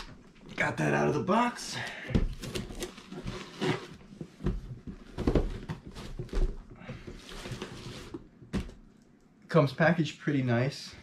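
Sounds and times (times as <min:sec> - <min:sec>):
cardboard rustling and scraping: 0:02.3 - 0:08.8.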